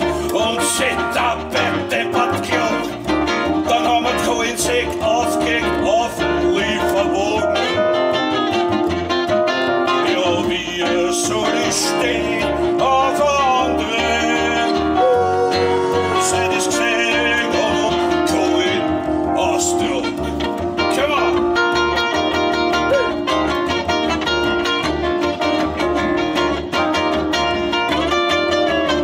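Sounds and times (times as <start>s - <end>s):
man singing into microphone: 0.0s - 8.4s, 9.9s - 21.3s
keyboard: 0.0s - 29.0s
upright double bass: 0.0s - 29.0s.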